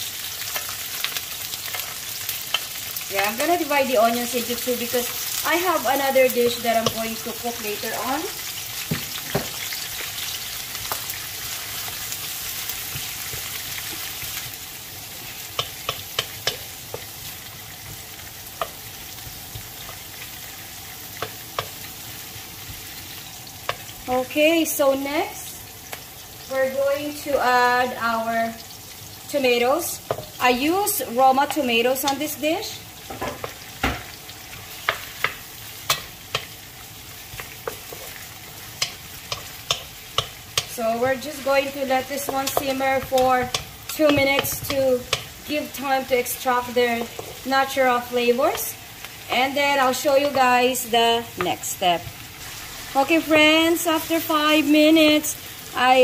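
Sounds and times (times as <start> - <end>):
onions sizzling in hot oil: 0.0 - 56.0
spatula knocking and scraping pan: 5.5 - 8.1, 8.8 - 10.1, 15.2 - 20.2, 21.1 - 21.9, 23.6 - 24.0, 30.0 - 30.4, 33.0 - 36.6, 37.2 - 48.8, 51.3 - 52.2.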